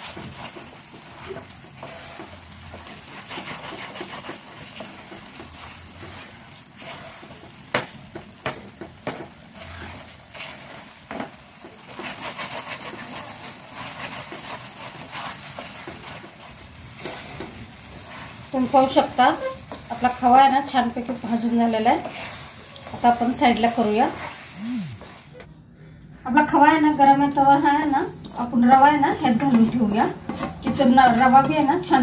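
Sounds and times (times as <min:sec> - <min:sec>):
spatula scraping a pan: 0:00.0 - 0:25.4, 0:27.4 - 0:32.0
spatula tapping a pan: 0:07.3 - 0:09.5.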